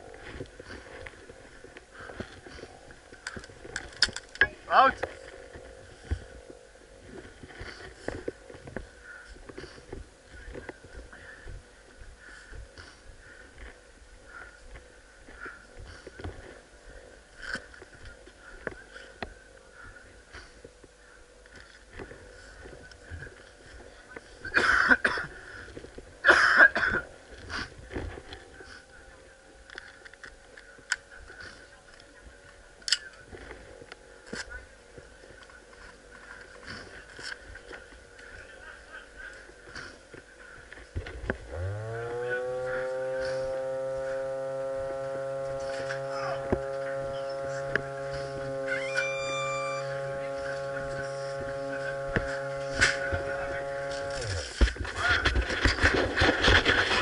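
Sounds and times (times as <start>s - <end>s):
clicks and rustles of movement: 0.0s - 11.6s, 44.6s - 57.0s
person coughing: 24.5s - 25.3s, 26.2s - 27.1s
machine buzzing: 41.3s - 57.0s.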